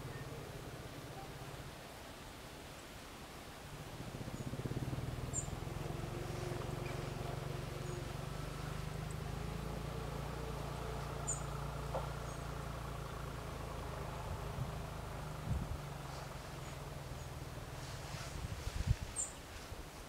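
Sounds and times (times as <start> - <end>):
low engine hum: 0.0 - 2.6, 3.5 - 19.8
faint high bird chirps: 11.2 - 11.6.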